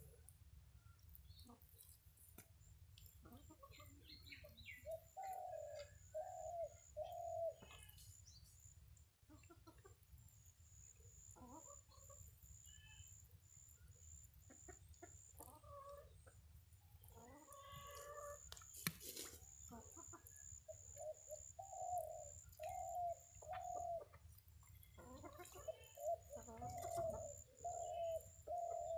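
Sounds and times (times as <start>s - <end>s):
chicken clucking: 3.0s - 7.9s, 9.3s - 10.1s, 14.4s - 16.4s, 17.0s - 21.5s, 22.4s - 28.5s
chicken chirps: 14.4s - 16.4s, 17.1s - 28.9s.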